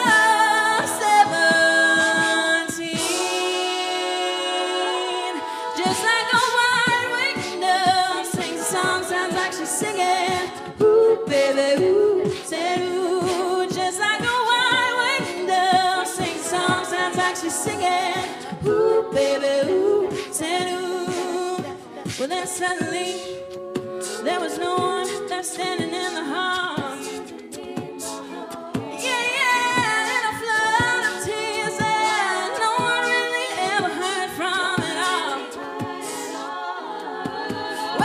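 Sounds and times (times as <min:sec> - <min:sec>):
vocal-percussion beat: 0:00.0 - 0:38.0
women singing close harmony: 0:00.0 - 0:38.0.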